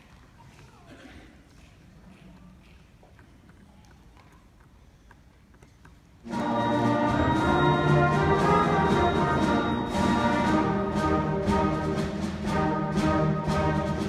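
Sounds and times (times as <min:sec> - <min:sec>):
concert band playing a march: 0:06.2 - 0:14.0.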